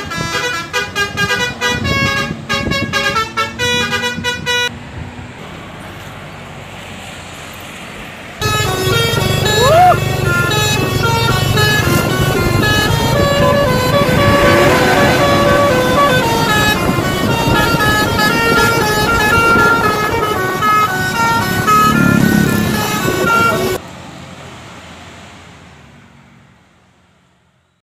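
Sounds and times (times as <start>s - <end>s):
multi-tone bus horn tune: 0.0s - 4.7s, 8.4s - 23.8s.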